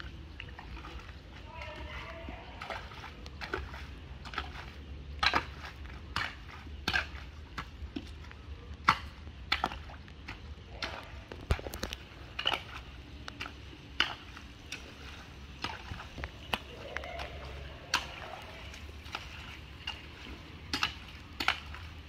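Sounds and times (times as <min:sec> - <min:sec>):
metal hoe scraping wet mud: 0:00.0 - 0:22.0.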